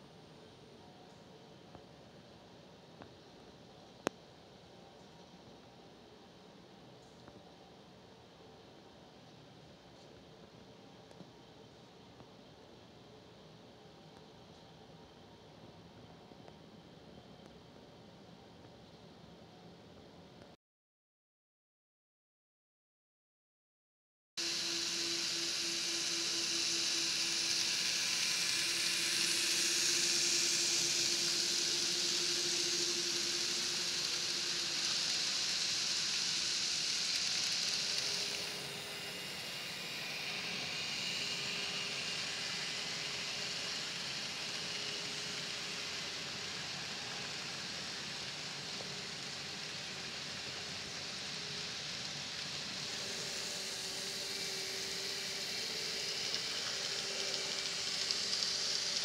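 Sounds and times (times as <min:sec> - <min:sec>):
faint motor whine: 0:00.0 - 0:20.6, 0:24.4 - 0:59.0
small wheels rolling on rails: 0:24.4 - 0:59.0.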